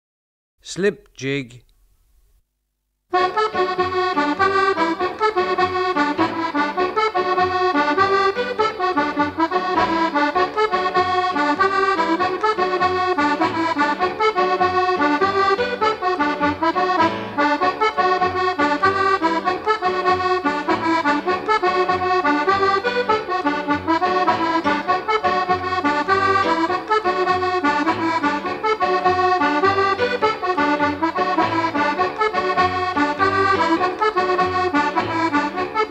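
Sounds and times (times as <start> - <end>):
accordion folk jig: 3.1 - 35.9.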